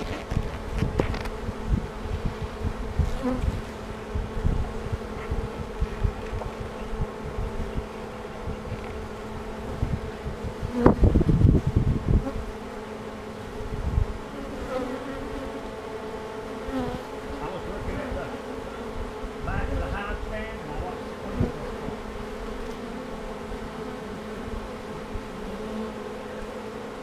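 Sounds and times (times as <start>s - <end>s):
knocks and rubbing on microphone: 0.0s - 1.6s
bees buzzing: 0.0s - 27.0s.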